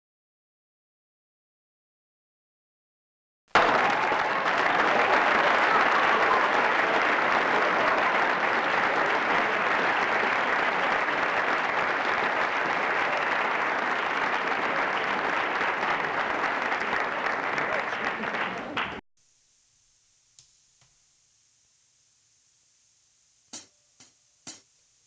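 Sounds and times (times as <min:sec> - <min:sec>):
audience applause: 0:03.5 - 0:19.0.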